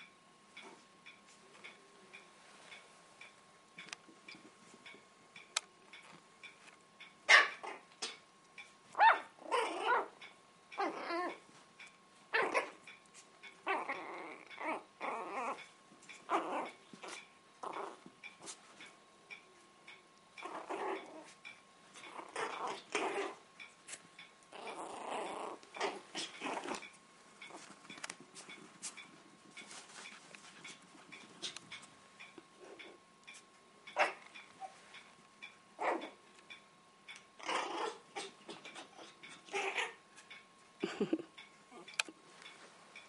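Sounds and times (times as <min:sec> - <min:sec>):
clock ticking faintly: 0:00.0 - 0:12.0, 0:12.8 - 0:37.4, 0:40.2 - 0:43.0
puppies growling: 0:07.3 - 0:08.2, 0:09.0 - 0:11.5, 0:12.3 - 0:18.6, 0:20.4 - 0:23.5, 0:24.5 - 0:28.6, 0:29.5 - 0:33.0, 0:35.8 - 0:36.3, 0:37.4 - 0:40.0, 0:40.8 - 0:42.0
puppies yipping: 0:09.0 - 0:10.1, 0:33.9 - 0:34.8.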